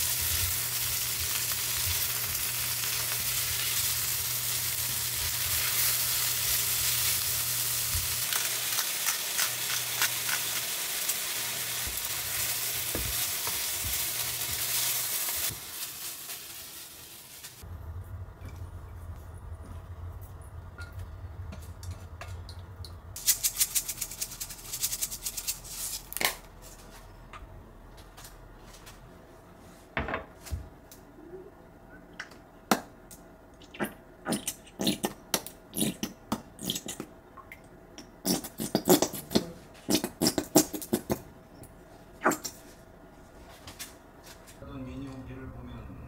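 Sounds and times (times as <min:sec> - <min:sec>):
low hum: 0:17.6 - 0:23.2.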